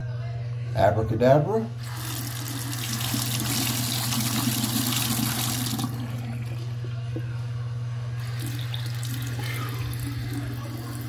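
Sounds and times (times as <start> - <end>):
faucet running into sink: 1.8 - 6.6, 8.2 - 11.0.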